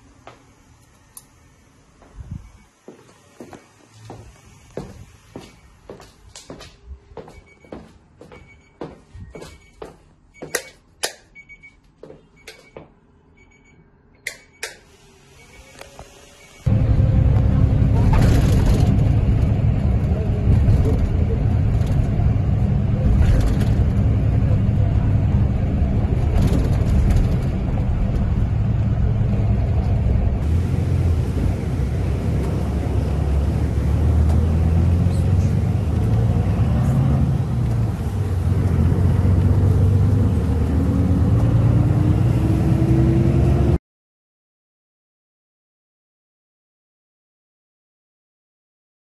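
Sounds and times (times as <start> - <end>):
vehicle road and engine rumble: 0.0 - 13.6, 14.2 - 43.8
footsteps on hard floor: 2.9 - 10.6.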